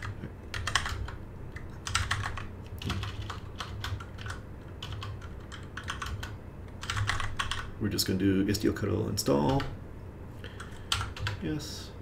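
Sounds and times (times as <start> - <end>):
keyboard typing: 0.0 - 7.7, 9.3 - 9.8, 10.6 - 11.4.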